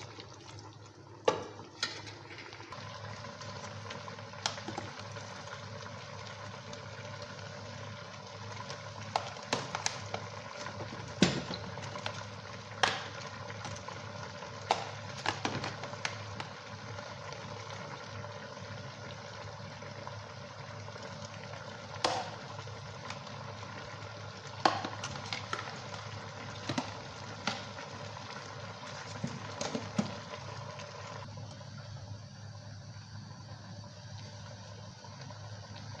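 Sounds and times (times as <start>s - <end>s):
utensil clicks and knocks on pot: 24.6s - 25.7s.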